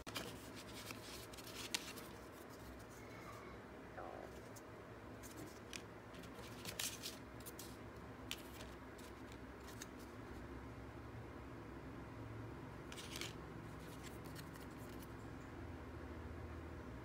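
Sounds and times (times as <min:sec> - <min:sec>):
paper and foil rustling: 0:00.0 - 0:03.0, 0:05.2 - 0:10.2
low room hum: 0:00.0 - 0:17.0.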